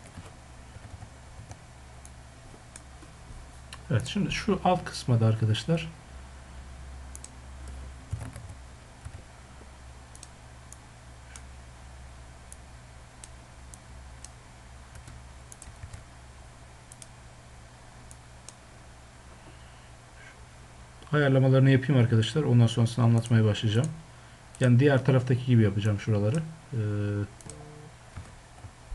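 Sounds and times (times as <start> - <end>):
keyboard and mouse clicks: 0.0 - 1.6, 7.1 - 9.2, 10.1 - 10.3, 14.2 - 16.1.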